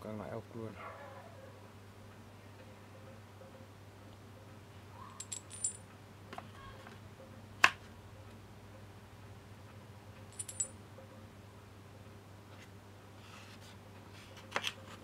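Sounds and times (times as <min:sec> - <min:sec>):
metal bolts clinking: 0:05.2 - 0:05.8, 0:10.3 - 0:10.7.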